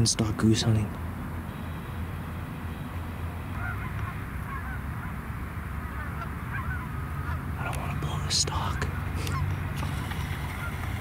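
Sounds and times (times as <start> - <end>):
geese honking: 1.5 - 7.5, 8.9 - 11.0.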